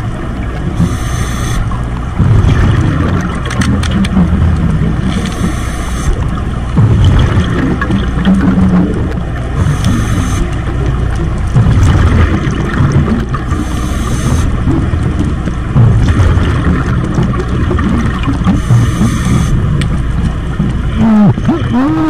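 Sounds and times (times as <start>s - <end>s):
muffled underwater rumble: 0.0s - 22.0s.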